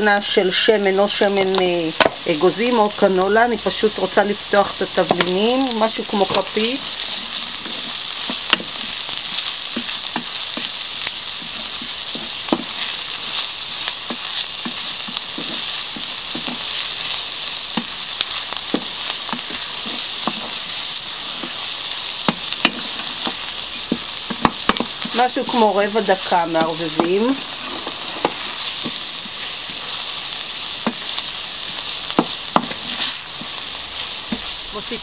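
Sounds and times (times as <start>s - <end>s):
onions sizzling in hot oil: 0.0s - 35.0s
wooden spoon scraping pan: 22.8s - 30.0s.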